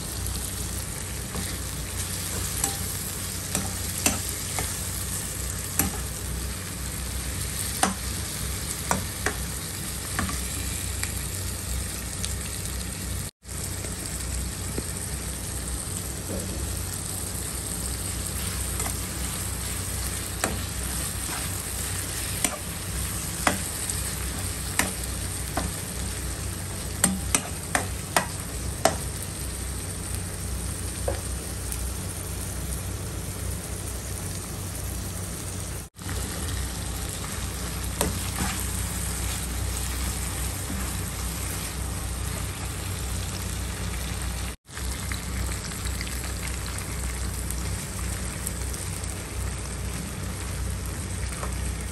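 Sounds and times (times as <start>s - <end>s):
vegetables sizzling in a wok: 0.0s - 51.9s.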